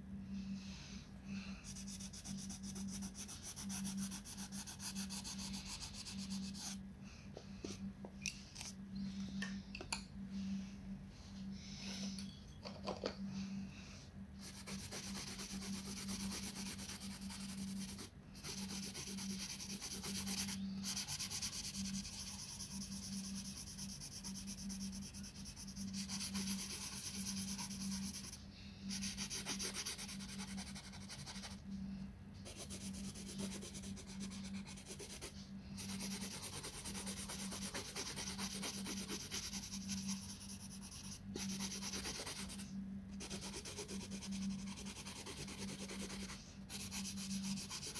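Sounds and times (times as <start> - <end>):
steady low hum: 0.0 - 47.9
pencil scratching on paper: 1.6 - 6.8, 14.4 - 31.6, 32.4 - 47.9.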